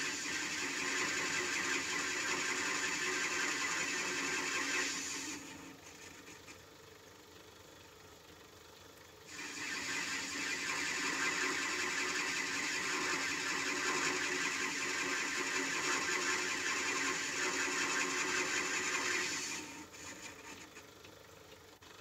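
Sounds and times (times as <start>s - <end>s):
metal lathe cutting hiss: 0.0s - 5.7s, 9.3s - 20.6s.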